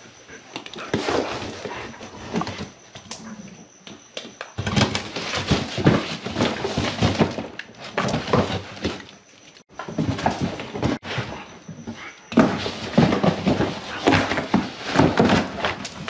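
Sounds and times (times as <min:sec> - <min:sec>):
cardboard rustling: 0:04.6 - 0:16.0.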